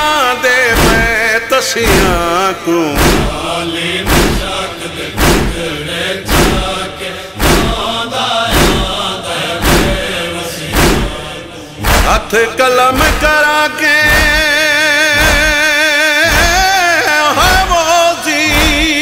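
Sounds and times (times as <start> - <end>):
men chanting in unison: 0.0 - 19.0
rhythmic chest-beating: 0.7 - 19.0.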